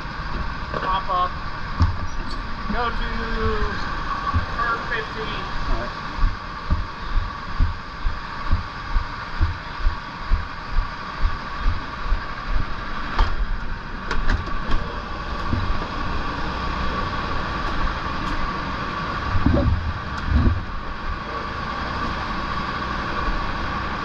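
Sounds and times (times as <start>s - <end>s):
footsteps thudding: 4.3s - 4.6s, 6.2s - 11.9s.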